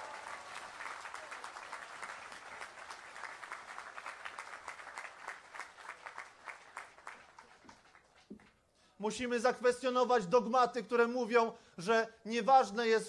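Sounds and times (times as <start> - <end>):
crowd clapping: 0.0 - 8.6.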